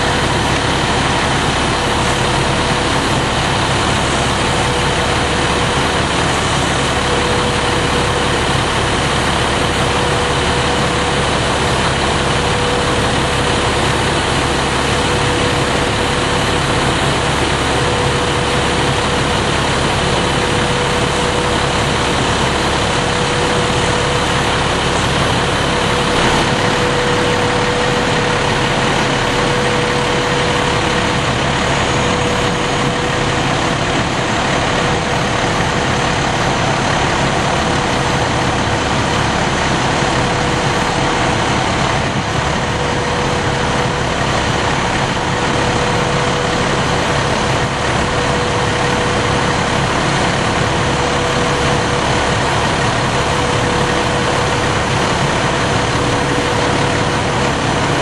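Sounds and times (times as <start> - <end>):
fire engine idling: 0.0 - 58.0.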